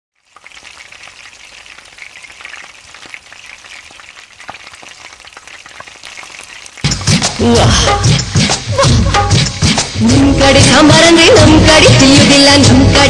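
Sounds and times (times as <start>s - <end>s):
oil sizzling in a pan: 0.1s - 10.2s
small pops: 0.2s - 7.4s.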